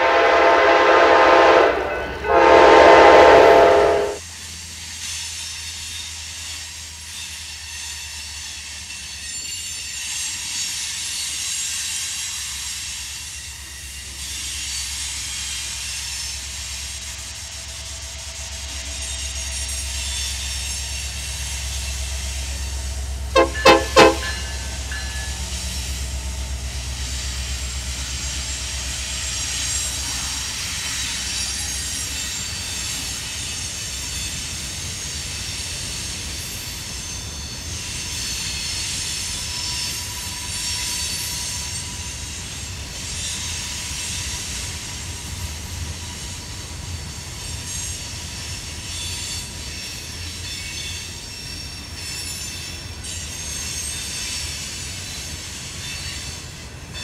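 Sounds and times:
train horn blasts: 0:00.0 - 0:04.2, 0:23.4 - 0:25.4
diesel locomotive rumble: 0:00.0 - 0:05.0, 0:05.7 - 0:52.0
train wheels on rails: 0:00.0 - 0:57.0
faint wheel squeal: 0:47.4 - 0:57.0.

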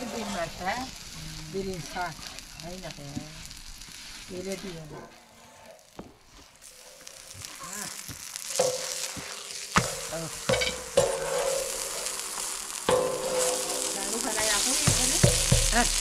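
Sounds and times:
flatbread sizzling in butter: 0:00.0 - 0:16.0
metal knocks on ringing pan: 0:10.5 - 0:11.2, 0:14.8 - 0:15.8.

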